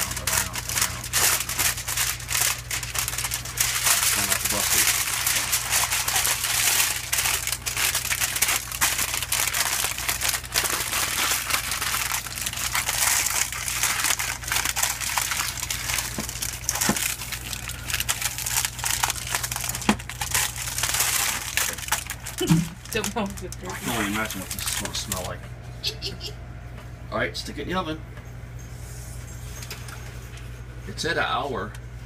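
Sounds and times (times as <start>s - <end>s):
aluminium foil crinkling: 0.0s - 25.4s.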